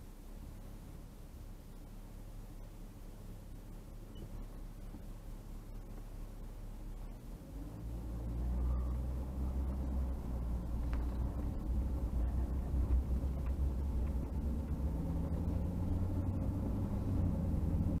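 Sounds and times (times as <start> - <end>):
vehicle engine and road noise: 0.0 - 18.0
faint ticks: 10.8 - 11.6.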